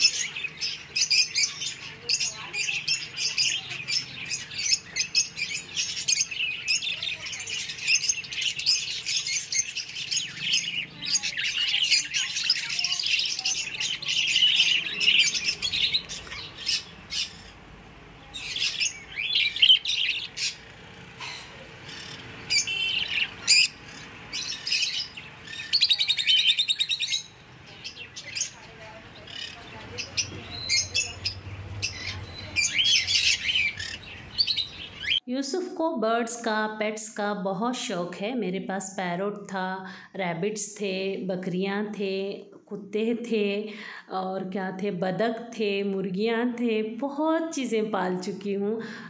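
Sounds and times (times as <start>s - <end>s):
birds chirping and chattering: 0.0s - 35.2s
fast repeated bird trill: 21.9s - 27.4s.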